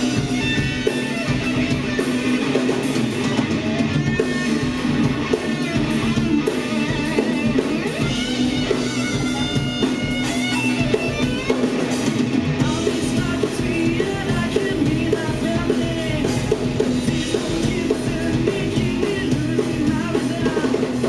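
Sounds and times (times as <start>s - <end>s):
bass guitar: 0.0s - 21.0s
drum kit beat: 0.0s - 21.0s
electric guitars: 0.0s - 21.0s.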